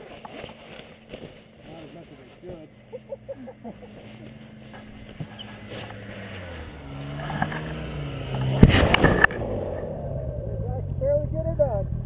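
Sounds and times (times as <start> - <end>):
snowmobile engines running: 0.0 - 12.0
loud rush of noise: 6.0 - 10.6.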